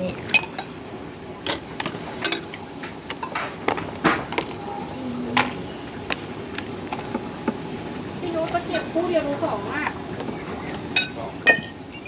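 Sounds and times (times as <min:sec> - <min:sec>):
spoon clinking on bowls: 0:10.9 - 0:12.0.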